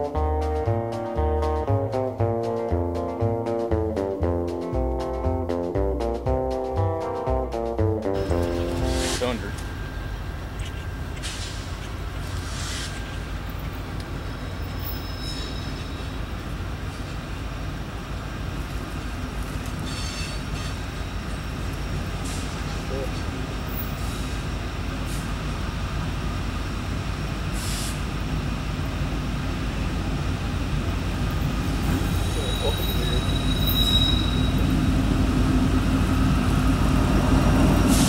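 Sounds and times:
train low rumble: 0.0 - 38.0
faint high squeaks: 14.3 - 16.3, 19.8 - 20.8, 32.2 - 34.7.

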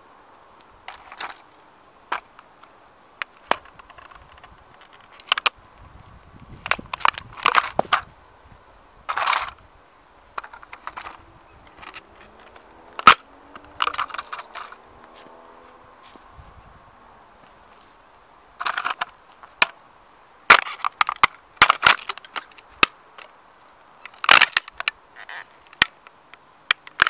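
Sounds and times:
plastic toy cracking underfoot: 3.2 - 5.6, 6.5 - 8.1, 10.4 - 14.8, 18.6 - 19.8, 20.5 - 23.3, 24.0 - 26.1, 26.7 - 27.0.

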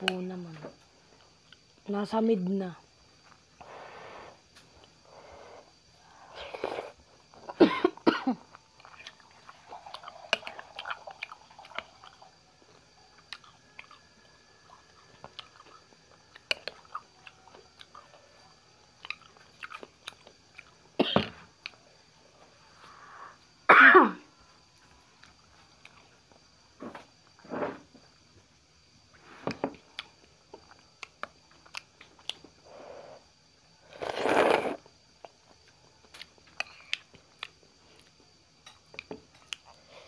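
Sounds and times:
person chewing noodles: 8.6 - 12.4, 13.2 - 18.1, 18.9 - 20.8, 34.0 - 37.6.

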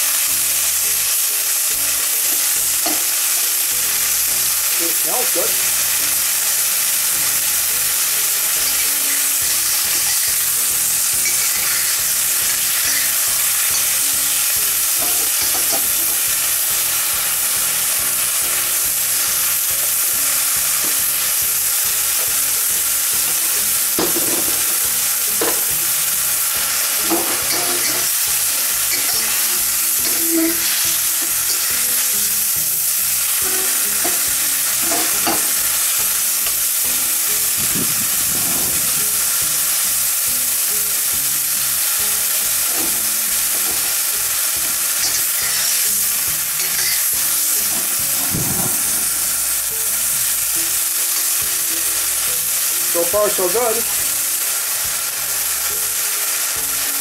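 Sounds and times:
stir-fry sizzling in a wok: 0.0 - 57.0
metal spatula scraping a wok: 8.0 - 19.4, 22.2 - 36.5, 37.2 - 39.5, 42.2 - 51.4.

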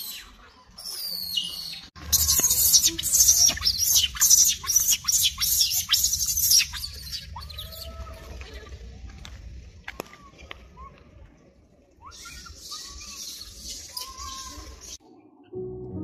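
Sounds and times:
high-pitched chirping and squeaking: 0.0 - 7.9.

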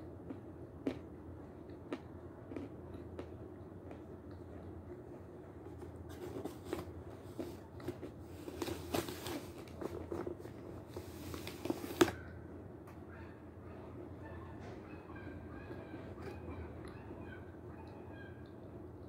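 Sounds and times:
chalk crunching while chewing: 0.2 - 12.3.

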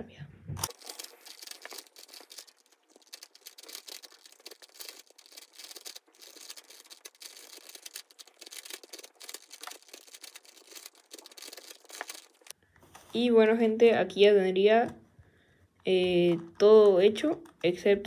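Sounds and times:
plastic puzzle cube clicking: 0.6 - 12.5.

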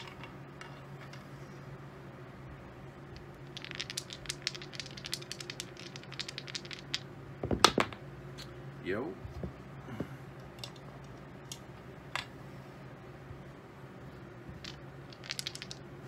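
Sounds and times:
dice rattling in hand: 3.2 - 7.9, 14.6 - 15.9
dice bouncing on table: 3.2 - 8.0, 14.6 - 15.9.

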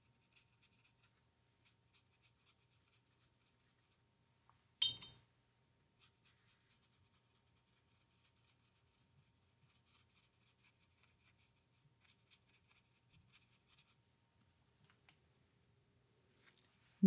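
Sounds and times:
paintbrush clinking glass jar: 4.8 - 5.2
brush strokes on paper: 6.0 - 14.0.

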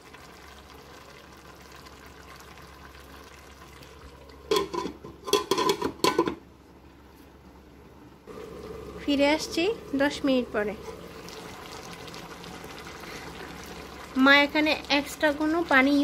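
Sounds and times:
metal lid clanking on pan: 4.5 - 6.4
vegetables sizzling in a pan: 8.3 - 16.0.

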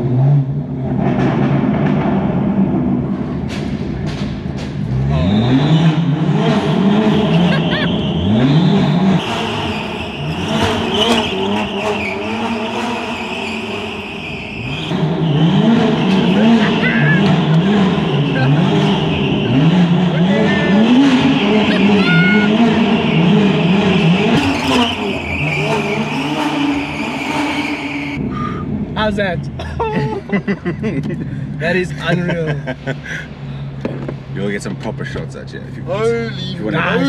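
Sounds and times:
car engine revving: 0.0 - 29.6.

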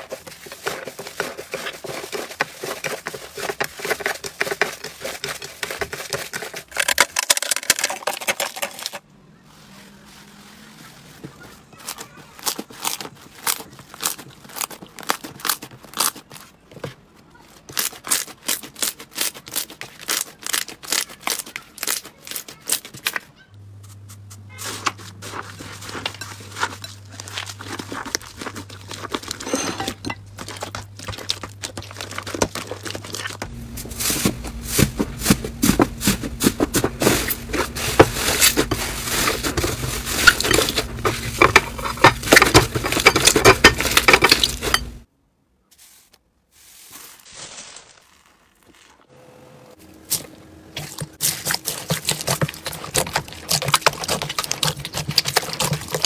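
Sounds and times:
slime crackling and popping: 17.8 - 22.8
low steady hum: 23.5 - 45.1.

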